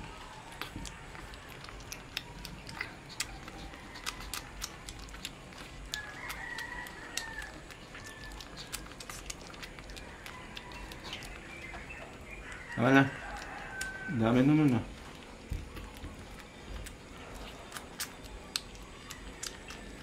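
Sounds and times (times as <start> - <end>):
puppy licking and chewing: 0.0 - 20.0
rooster crowing: 5.9 - 8.6, 12.3 - 14.6.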